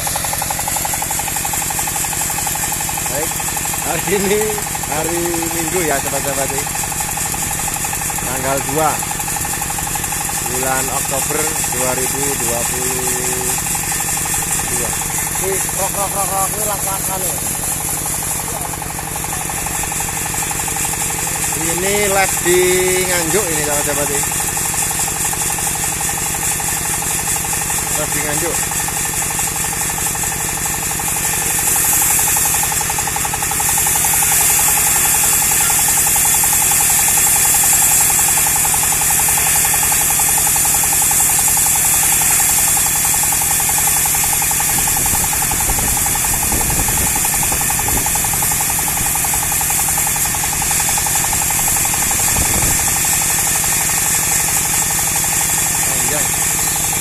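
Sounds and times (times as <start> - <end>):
diesel engine chugging: 0.0 - 57.0.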